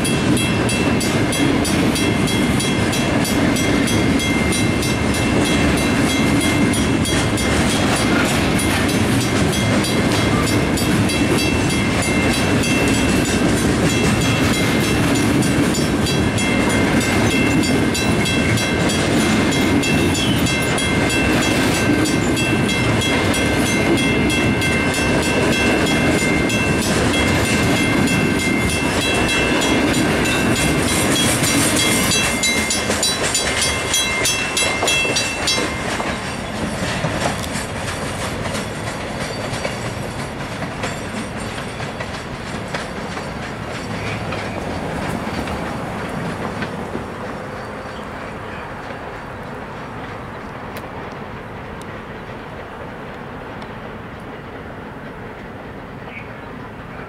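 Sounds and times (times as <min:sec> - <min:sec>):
crossing bell ringing: 0:00.0 - 0:45.5
train wheels clattering and rumbling: 0:00.0 - 0:57.0.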